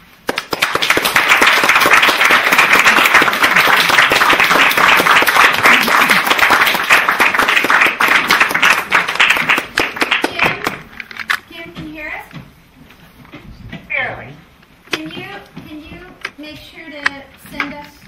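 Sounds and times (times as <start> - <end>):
audience applauding: 0.2 - 10.9.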